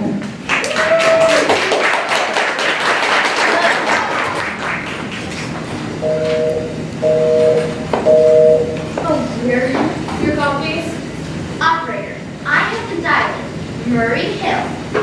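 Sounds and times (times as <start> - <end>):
audience applauding: 0.4 - 5.7
telephone busy signal beeps: 6.0 - 8.8.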